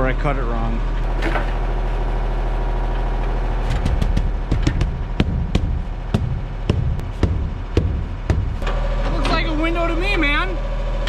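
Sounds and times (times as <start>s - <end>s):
machine engine idling: 1.5s - 9.6s
irregular knocks and thuds: 3.6s - 8.7s.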